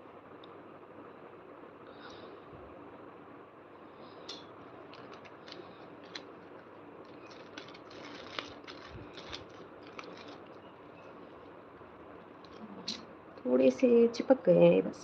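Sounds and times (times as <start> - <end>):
plastic packet crinkling: 4.6 - 11.6, 12.2 - 12.7.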